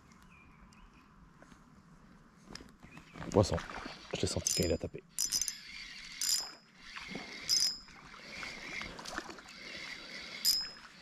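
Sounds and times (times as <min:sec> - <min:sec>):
reel drag buzzing: 0:03.8 - 0:11.0
fishing reel cranking: 0:04.4 - 0:08.8, 0:09.5 - 0:11.0.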